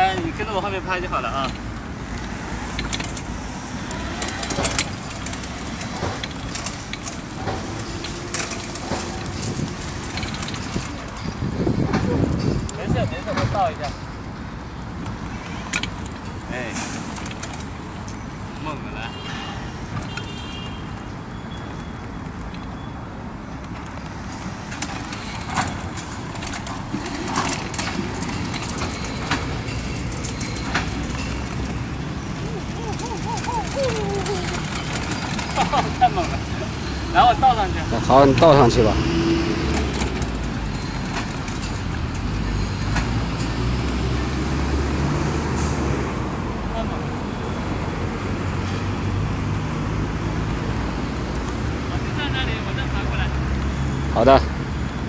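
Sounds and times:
quad bike rumbling: 0.0 - 47.0
clicks and rattles: 1.4 - 14.4, 23.6 - 37.1
electric quad running: 24.8 - 40.6.

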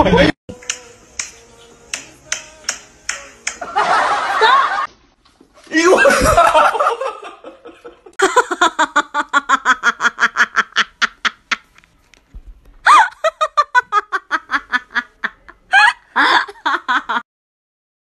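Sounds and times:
person laughing hard: 0.0 - 0.4, 3.6 - 4.9, 5.8 - 11.7, 12.8 - 17.2.

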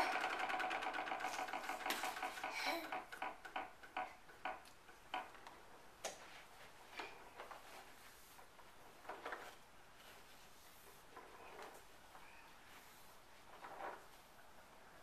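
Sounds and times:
toy lawn mower clicking: 0.0 - 4.0.

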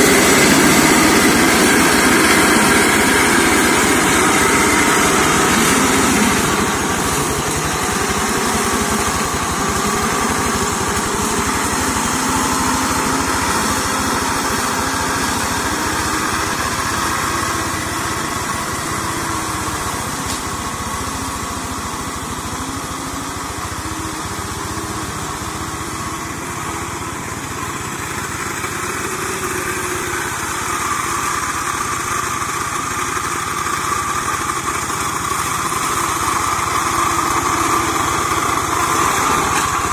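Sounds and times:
diesel mower engine running: 0.0 - 39.9.

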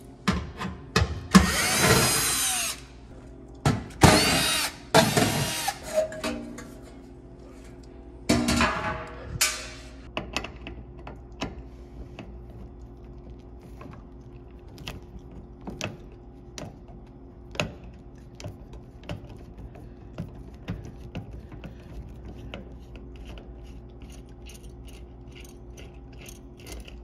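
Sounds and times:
cordless drill running: 1.4 - 2.9, 4.2 - 5.8.

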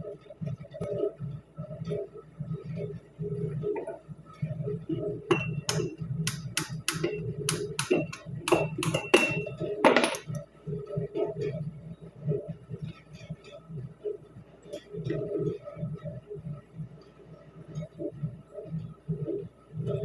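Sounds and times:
low steady hum: 0.0 - 20.0
hammer striking metal pick: 5.3 - 10.4.

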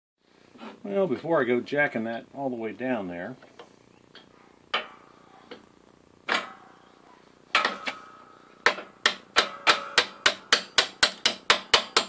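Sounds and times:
hammer striking steel drift: 7.5 - 12.0.

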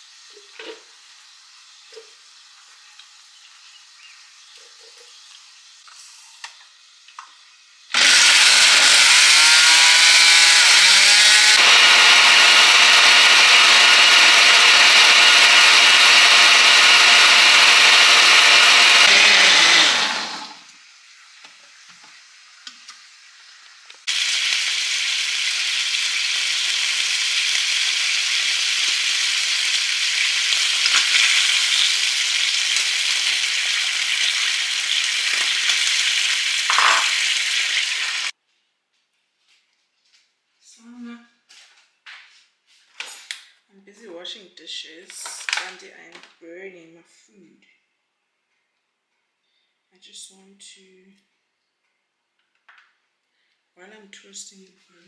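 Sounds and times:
food sizzling in a frying pan: 0.0 - 7.9, 20.7 - 38.4
blender motor whirring: 7.9 - 20.7, 24.1 - 38.4.

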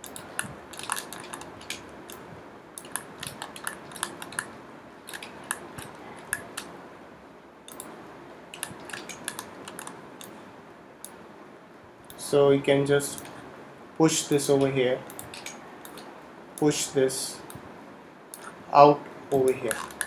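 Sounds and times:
mouse and keyboard clicking: 0.0 - 2.2, 2.8 - 6.7, 8.5 - 10.4, 15.1 - 16.1.

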